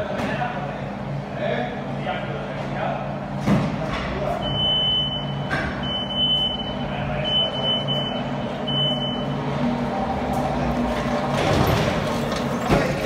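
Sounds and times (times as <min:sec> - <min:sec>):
forklift warning beeper: 0:04.4 - 0:09.6.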